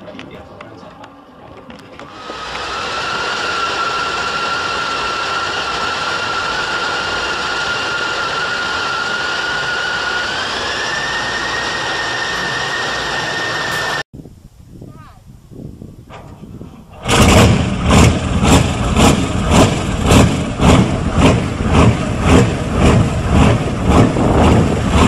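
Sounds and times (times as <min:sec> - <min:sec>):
diesel engine running: 0:01.9 - 0:14.1, 0:16.9 - 0:25.0
high whine: 0:02.0 - 0:14.1.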